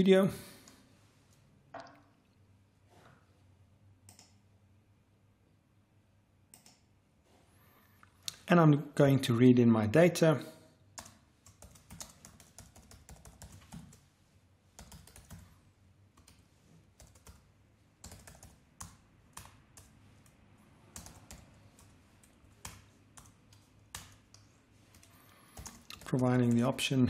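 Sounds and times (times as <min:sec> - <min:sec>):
faint keyboard typing: 0:04.0 - 0:04.5, 0:06.5 - 0:07.0, 0:10.9 - 0:14.1, 0:14.7 - 0:26.8.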